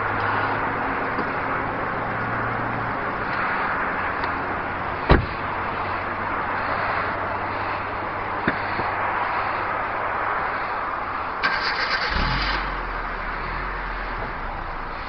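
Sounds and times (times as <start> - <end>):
car door slamming: 5.0 - 5.4
car engine idling: 10.5 - 15.0.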